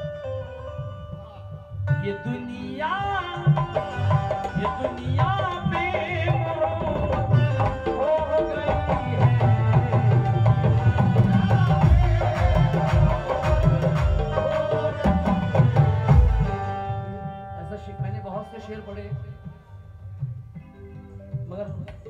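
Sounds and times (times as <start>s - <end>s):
hand drum rhythm: 2.8s - 17.4s.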